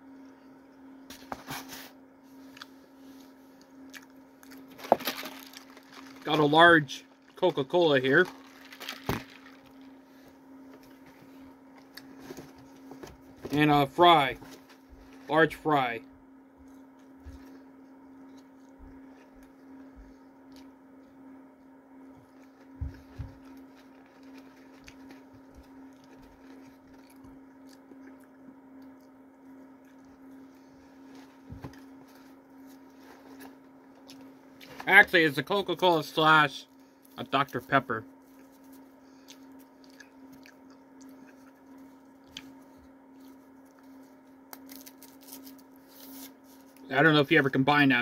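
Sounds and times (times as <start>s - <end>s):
low steady hum: 0.0s - 48.0s
cardboard box crinkling: 4.7s - 6.5s, 8.2s - 9.9s.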